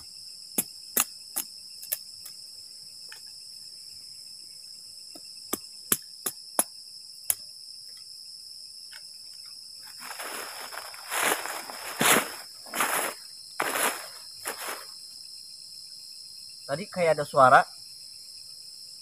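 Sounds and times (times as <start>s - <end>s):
crickets chirping: 0.0s - 19.0s
wooden stakes being struck: 0.6s - 2.0s, 5.5s - 6.7s
rustling scraping noise: 10.0s - 14.9s.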